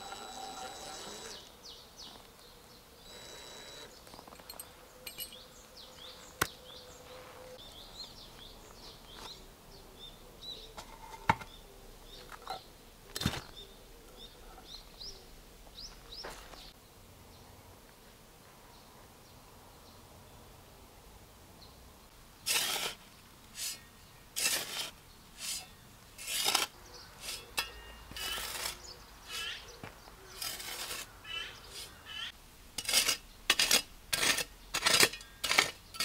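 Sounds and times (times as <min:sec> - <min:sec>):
cordless drill whining: 0:00.0 - 0:01.5, 0:03.1 - 0:03.9
small birds chirping: 0:00.0 - 0:18.0, 0:22.4 - 0:32.4.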